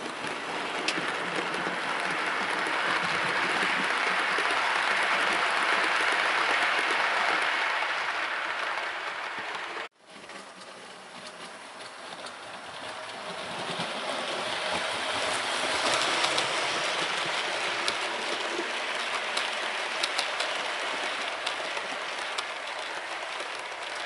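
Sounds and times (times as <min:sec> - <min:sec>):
model train wheels clattering: 0:00.0 - 0:24.0.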